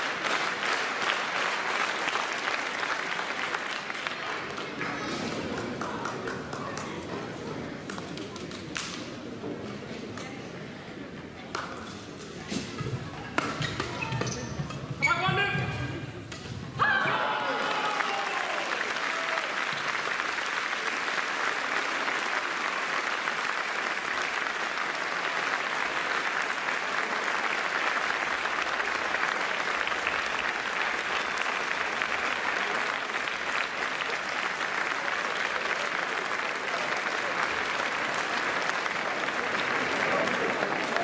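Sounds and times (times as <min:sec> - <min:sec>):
crowd applauding: 0:00.0 - 0:07.4, 0:17.0 - 0:41.0.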